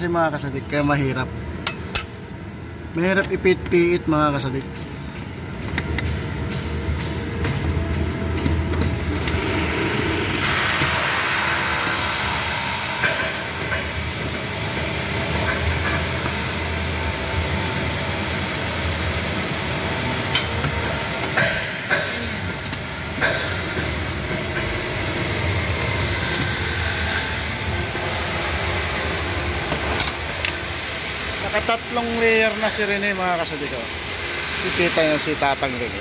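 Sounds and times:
machinery drone: 0:00.0 - 0:36.0.

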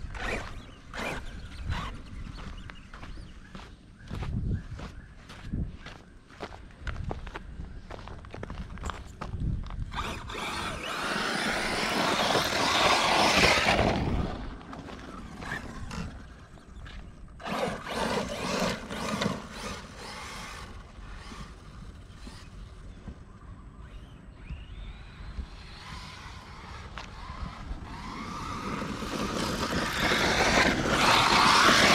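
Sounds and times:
toy truck motor whirring: 0:00.0 - 0:02.2, 0:09.9 - 0:23.0, 0:23.8 - 0:31.9
tyres churning sand: 0:09.9 - 0:16.6, 0:17.4 - 0:22.8, 0:25.2 - 0:31.9.

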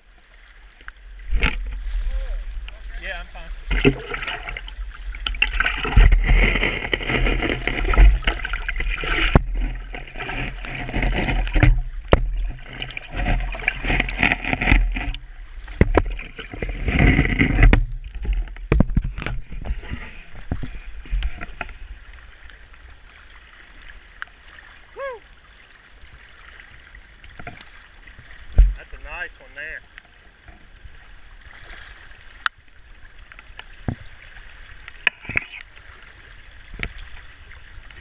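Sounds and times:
rushing stream water: 0:00.0 - 0:38.0
camera handling rustles and knocks: 0:05.3 - 0:21.8.

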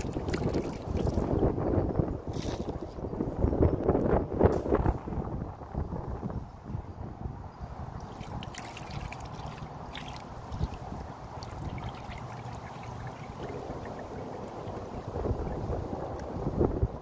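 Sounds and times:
water pouring onto concrete: 0:00.0 - 0:01.3, 0:08.0 - 0:15.8.

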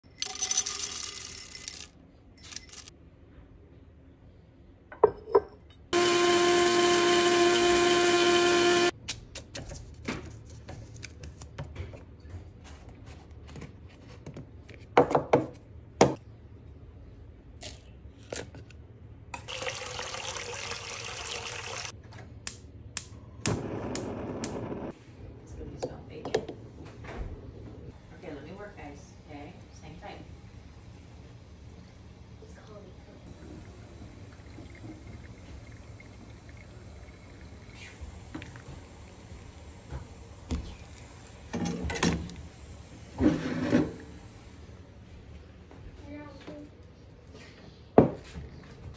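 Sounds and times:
liquid pouring: 0:19.4 - 0:21.9, 0:33.3 - 0:39.4.

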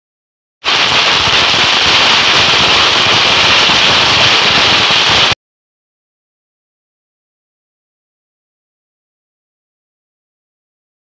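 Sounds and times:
firecrackers crackling: 0:00.6 - 0:05.4.

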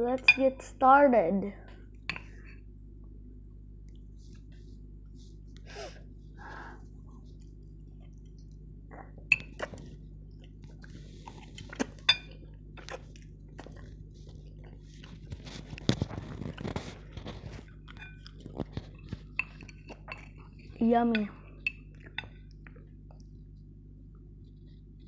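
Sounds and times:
low steady hum: 0:00.0 - 0:25.0
slurping and chewing noodles: 0:06.8 - 0:20.8.

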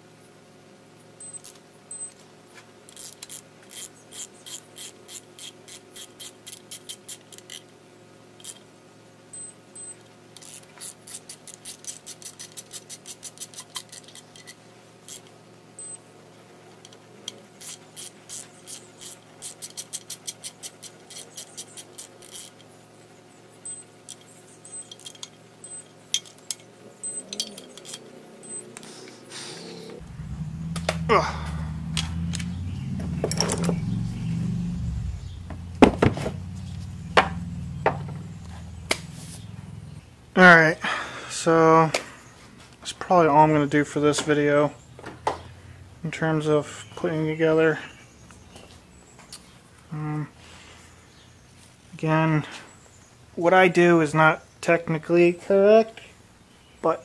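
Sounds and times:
torque wrench ratchet clicking: 0:02.9 - 0:07.7, 0:08.4 - 0:08.7, 0:09.4 - 0:16.0, 0:16.8 - 0:22.7, 0:23.7 - 0:28.6.

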